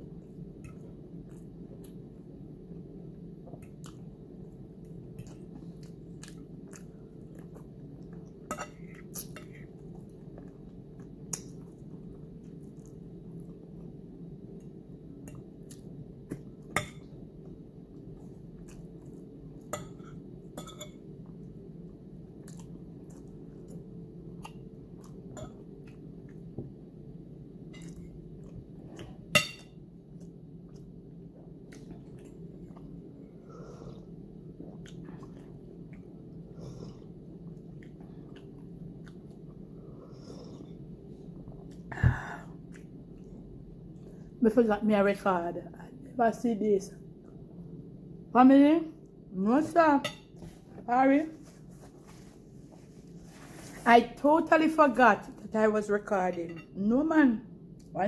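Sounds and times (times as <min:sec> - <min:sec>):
steady low hum: 0:00.0 - 0:58.0
chewing: 0:05.2 - 0:13.6, 0:22.4 - 0:26.4, 0:36.7 - 0:39.6.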